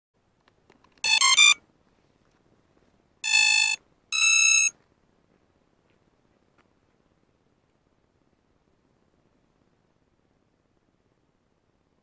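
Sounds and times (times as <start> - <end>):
drone motors beeping tune: 1.1 - 1.6, 3.2 - 4.7.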